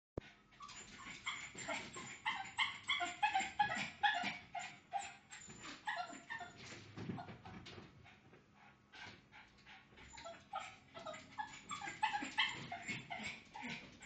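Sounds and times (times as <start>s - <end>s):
dog yipping and whining: 0.6s - 7.6s, 10.1s - 14.0s.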